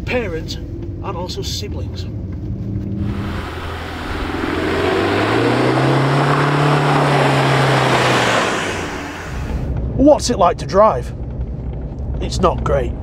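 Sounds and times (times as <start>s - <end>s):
diesel truck engine: 0.0s - 10.2s
broad rushing noise: 3.0s - 9.7s.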